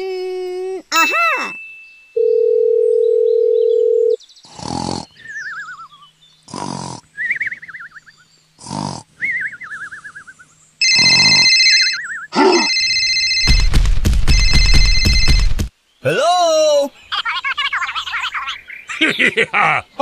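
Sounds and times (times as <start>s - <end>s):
phone ringtone: 1.0s - 4.2s, 10.8s - 13.7s, 14.3s - 15.6s
cartoon snoring: 4.5s - 5.3s, 6.5s - 7.2s, 8.6s - 9.1s.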